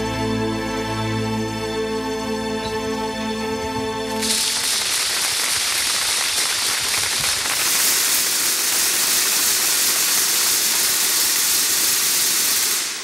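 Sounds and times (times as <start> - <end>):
static hiss: 4.2 - 13.0.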